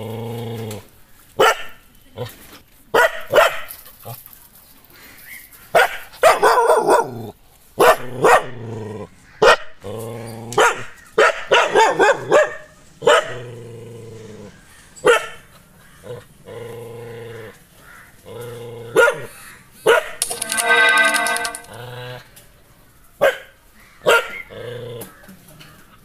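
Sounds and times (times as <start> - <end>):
dog barking: 1.4 - 1.8, 3.0 - 3.7, 5.8 - 7.2, 7.8 - 8.6, 9.4 - 9.7, 10.6 - 13.4, 15.0 - 15.4, 19.0 - 20.2, 23.2 - 24.4.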